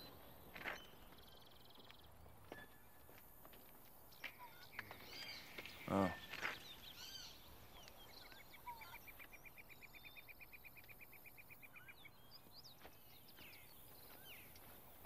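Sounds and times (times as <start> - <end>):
bird chirps: 0.0 - 3.2, 4.1 - 15.0.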